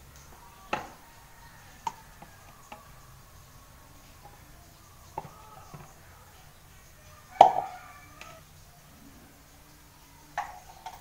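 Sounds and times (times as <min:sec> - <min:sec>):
plastic cups and spatula clicking: 0:01.7 - 0:03.3, 0:04.0 - 0:06.0.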